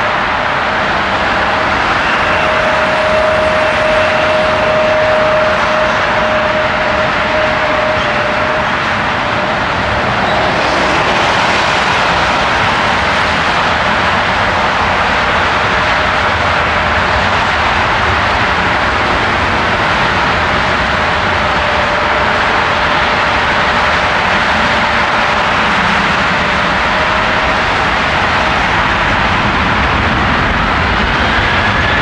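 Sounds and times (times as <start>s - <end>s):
jet engine rush: 0.0s - 32.0s.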